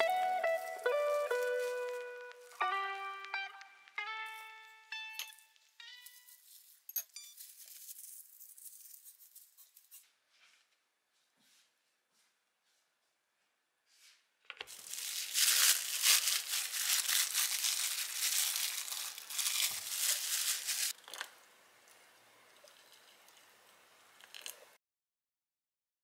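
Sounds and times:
cling film crinkling: 0.0 - 4.0, 6.0 - 10.0, 14.7 - 21.0.

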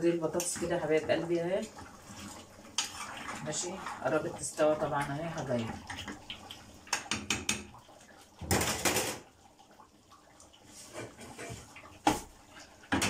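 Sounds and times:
spoon knocking on pans: 6.9 - 7.8.

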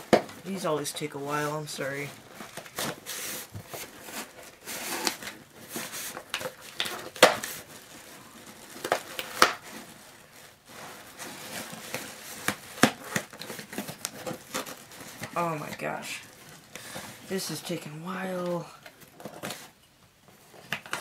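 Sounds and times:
cardboard box rustling: 1.2 - 17.8.

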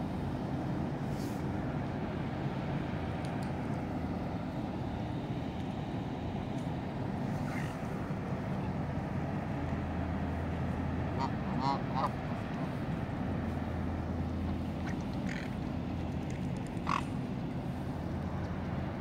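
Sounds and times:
steady low hum: 0.0 - 19.0
ducks and geese calling: 11.1 - 12.8, 14.5 - 17.4.

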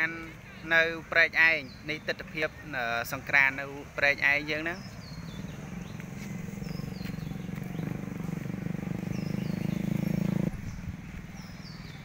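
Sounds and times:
motorbike engine running: 4.8 - 11.7.

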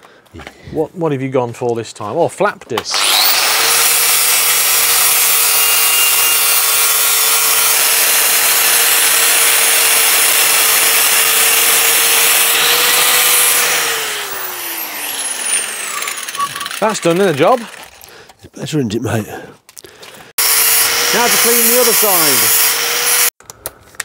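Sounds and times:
angle grinder grinding metal: 2.8 - 18.4, 20.3 - 23.4
grinder disc spinning down: 2.9 - 18.0, 20.4 - 23.3.

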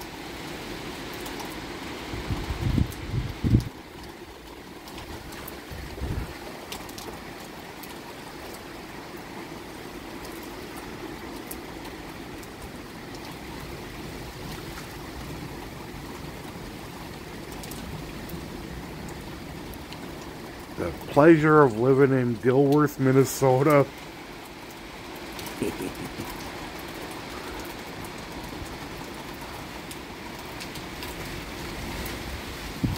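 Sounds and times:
heavy rain falling: 0.0 - 32.9
sharp drip ticks: 0.4 - 1.6, 10.2 - 13.4, 17.4 - 18.4.

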